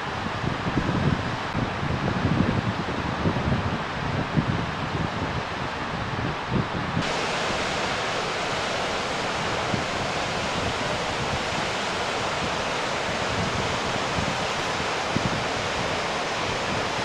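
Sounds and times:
waterfall roaring: 7.0 - 17.0.

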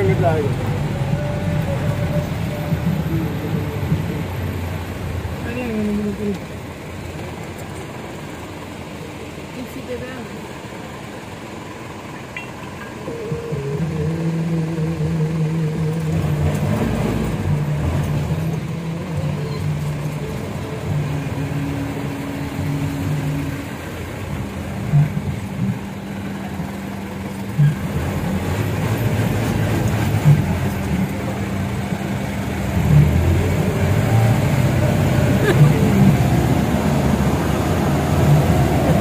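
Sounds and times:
vehicle engine droning: 0.0 - 39.0.

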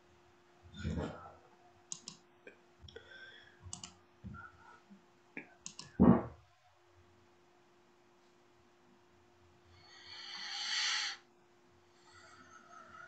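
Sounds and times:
short clicks and small knocks: 1.9 - 2.2, 3.7 - 4.0, 5.6 - 6.0.

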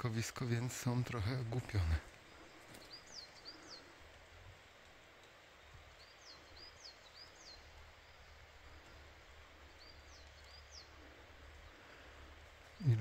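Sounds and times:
small bird chirping: 1.2 - 4.2, 5.0 - 11.9.

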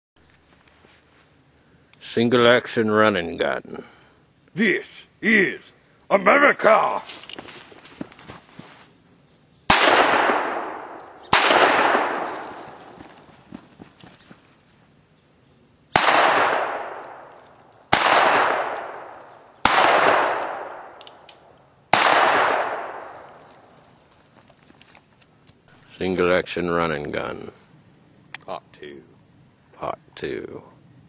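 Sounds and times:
revolver shots with echo: 9.7 - 12.3.

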